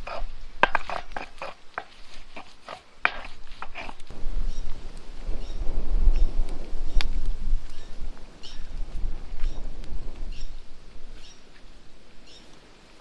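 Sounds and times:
stone roller grinding paste: 0.0 - 4.1.

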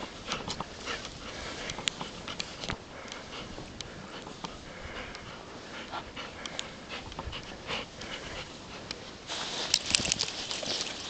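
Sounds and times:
puppy panting: 0.0 - 9.3
wading through snow: 8.4 - 11.0.

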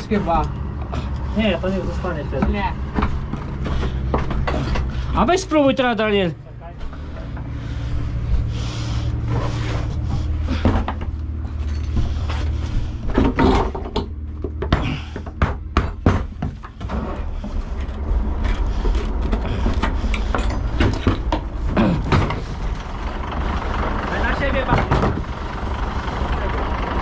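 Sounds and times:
engine droning: 0.0 - 27.0
wooden and metal knocks: 2.4 - 5.0, 13.1 - 17.2, 19.2 - 22.4, 24.7 - 25.3.

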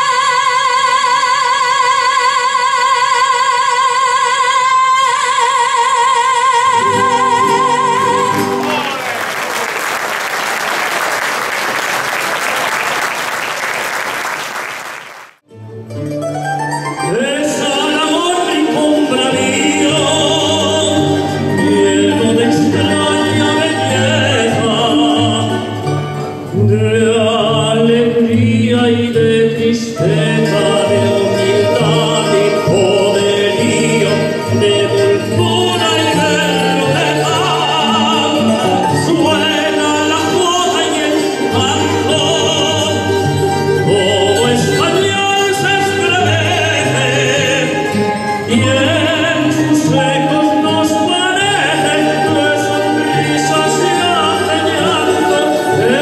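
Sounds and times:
instrumental accompaniment with bass: 15.4 - 56.0
man singing into a microphone: 17.0 - 56.0.

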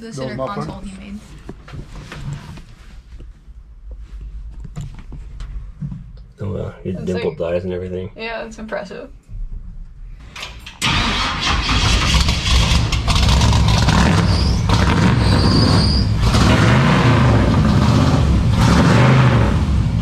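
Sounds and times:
truck engine revving: 10.8 - 20.0
short high squeal: 14.1 - 16.2.

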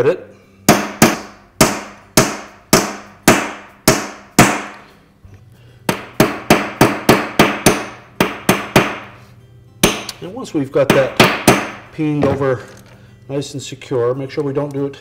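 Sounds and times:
hammer striking metal: 0.7 - 4.8, 5.9 - 9.2, 9.8 - 10.2, 10.8 - 12.5.

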